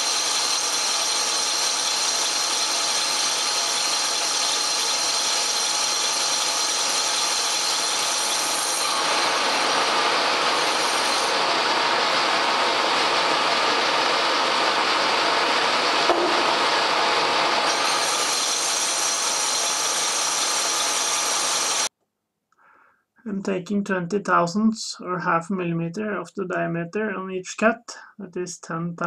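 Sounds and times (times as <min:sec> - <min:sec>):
hiss of lathe cutting metal: 0:00.0 - 0:21.9
lathe high-pitched whine: 0:00.0 - 0:21.9.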